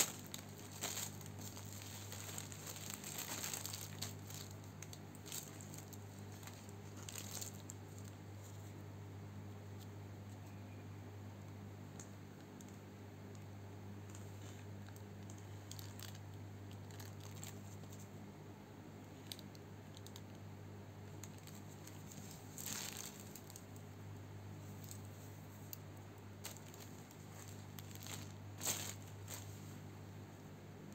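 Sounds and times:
plastic bag crinkling: 0:00.0 - 0:08.6, 0:14.1 - 0:18.1, 0:19.2 - 0:20.4, 0:21.1 - 0:23.9, 0:24.6 - 0:25.8, 0:26.4 - 0:29.8
steady low hum: 0:00.0 - 0:30.9.

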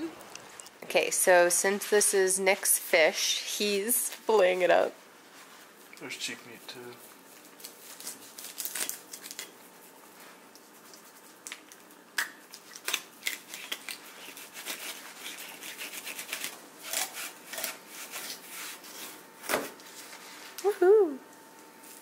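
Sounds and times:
knife scraping and crunching fish: 0:12.6 - 0:19.1.

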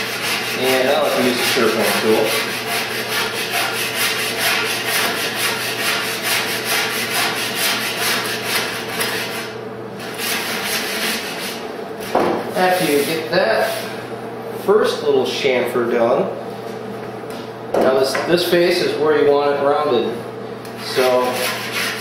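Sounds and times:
block plane shaving wood: 0:00.0 - 0:13.9, 0:20.8 - 0:22.0.

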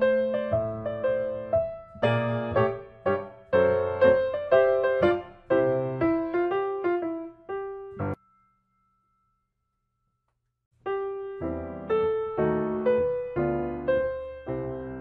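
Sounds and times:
piano melody: 0:00.0 - 0:08.5, 0:10.8 - 0:15.0.

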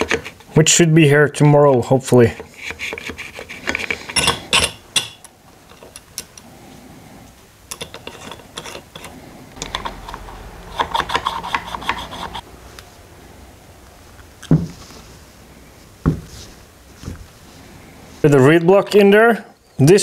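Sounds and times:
metal clicks and scrapes: 0:07.7 - 0:12.4.

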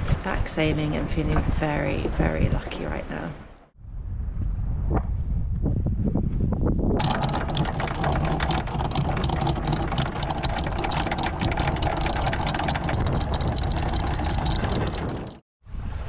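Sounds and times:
windlass mechanical hum: 0:06.7 - 0:15.4
anchor chain clattering: 0:07.0 - 0:15.4.

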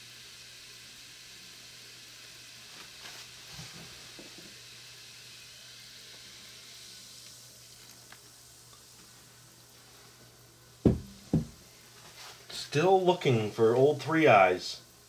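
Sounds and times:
fizzing hiss of dissolving pods: 0:00.0 - 0:15.0.

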